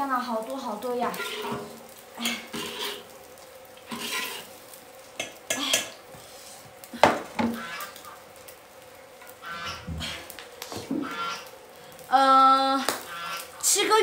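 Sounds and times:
kitchen utensils clinking and scraping: 0:01.0 - 0:03.1, 0:03.9 - 0:04.5.

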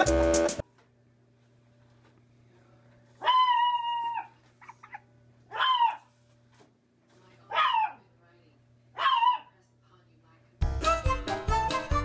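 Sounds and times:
dog howling bark: 0:03.2 - 0:04.4, 0:05.5 - 0:06.1, 0:07.5 - 0:08.0, 0:09.0 - 0:09.5
dog yipping: 0:03.2 - 0:06.1, 0:07.5 - 0:08.0, 0:09.0 - 0:09.5.

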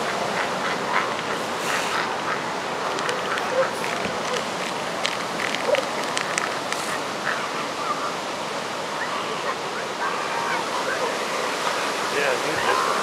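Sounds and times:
elephant seals honking and squawking: 0:00.0 - 0:08.2
surf hiss: 0:00.0 - 0:13.0.

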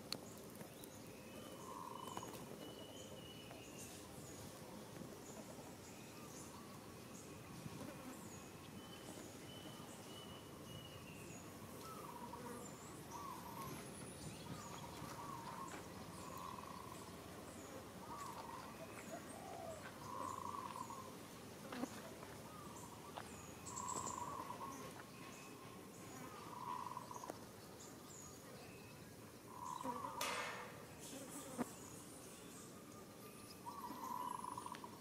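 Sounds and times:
bird low call: 0:14.4 - 0:21.2, 0:22.4 - 0:27.3, 0:28.4 - 0:31.6, 0:33.5 - 0:35.0.

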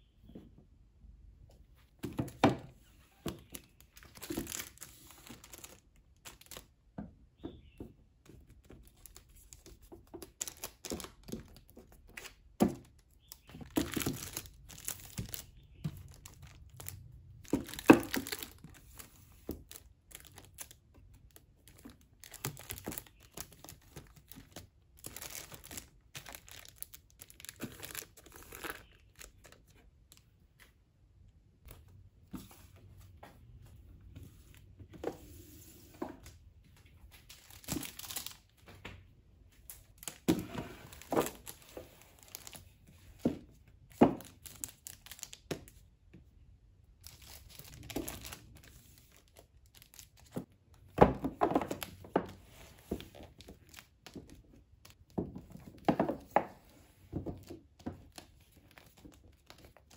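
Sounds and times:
plastic shrink-wrap crinkling: 0:03.3 - 0:06.7, 0:13.2 - 0:29.6, 0:37.3 - 0:38.5, 0:39.8 - 0:42.8, 0:44.2 - 0:45.5, 0:47.0 - 0:50.4.

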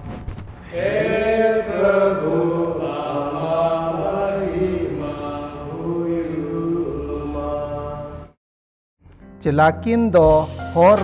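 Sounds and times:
man chanting: 0:00.7 - 0:08.0.

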